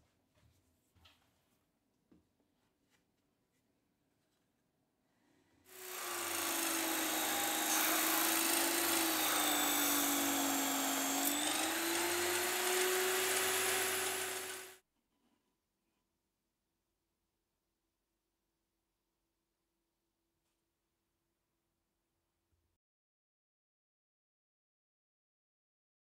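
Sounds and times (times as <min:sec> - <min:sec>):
electric drill motor whine: 0:05.7 - 0:14.8
plywood sanding hiss: 0:05.7 - 0:14.8.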